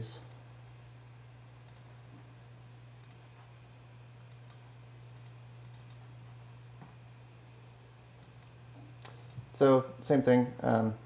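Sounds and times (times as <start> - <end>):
low electrical hum: 0.0 - 11.0
computer mouse clicks: 0.2 - 0.4, 1.6 - 1.9, 3.0 - 3.2, 4.2 - 6.0, 8.2 - 9.5.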